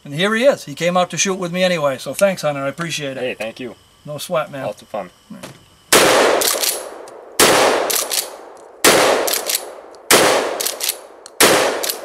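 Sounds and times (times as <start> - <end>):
shotgun shots with echo: 5.9 - 12.0
shotgun pump metallic clacks: 6.4 - 7.2, 7.8 - 12.0.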